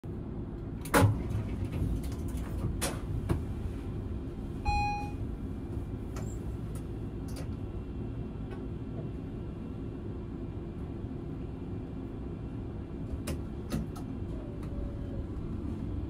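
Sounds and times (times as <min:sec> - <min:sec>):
tram humming low: 0:00.0 - 0:16.0
short electronic beep: 0:04.7 - 0:05.2.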